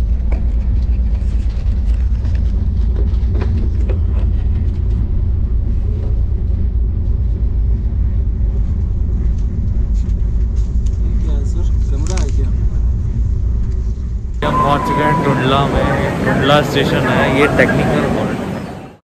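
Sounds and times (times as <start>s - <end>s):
train rumbling: 0.0s - 19.0s.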